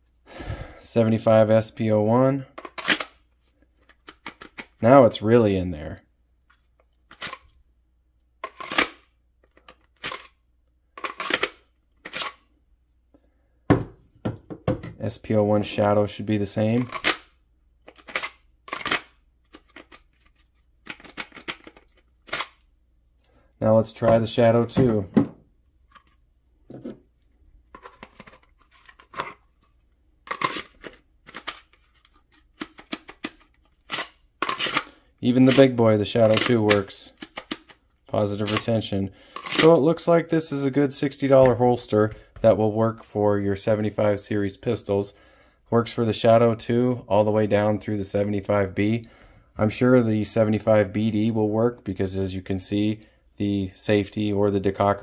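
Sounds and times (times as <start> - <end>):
plastic holster clicks and scrapes: 2.6 - 4.8, 11.0 - 12.5, 16.8 - 22.7, 30.3 - 34.9, 35.5 - 37.8.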